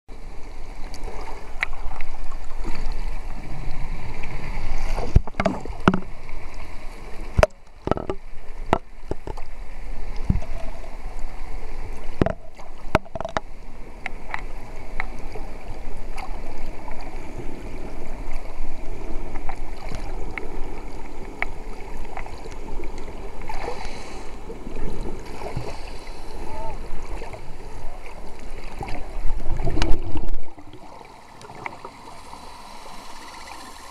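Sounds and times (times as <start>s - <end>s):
underwater rushing water: 0.1s - 33.9s
sharp clicks and knocks: 5.2s - 6.1s, 7.4s - 9.4s, 12.2s - 13.5s.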